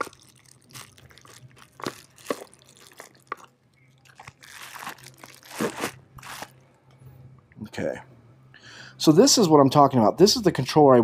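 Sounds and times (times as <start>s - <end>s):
plastic wrapping crinkling: 0.0s - 6.6s.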